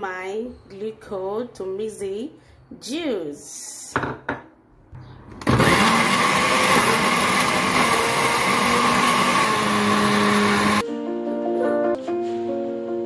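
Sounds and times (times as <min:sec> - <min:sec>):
electric blender whirring: 0:05.4 - 0:10.8
music: 0:10.6 - 0:13.0.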